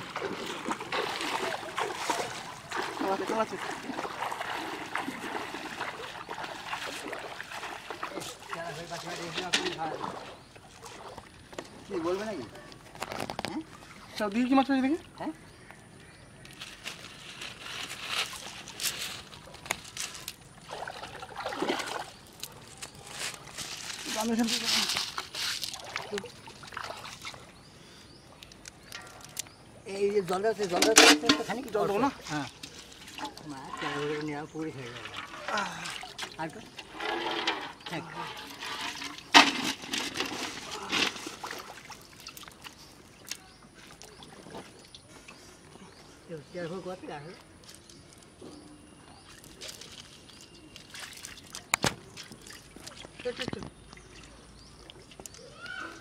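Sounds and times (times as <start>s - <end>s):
water splashing in metal bowl: 0.0s - 10.4s, 33.0s - 42.7s
water splashing and trickling: 0.0s - 56.0s
faint clicks and rustling of net: 16.4s - 20.5s, 49.3s - 56.0s.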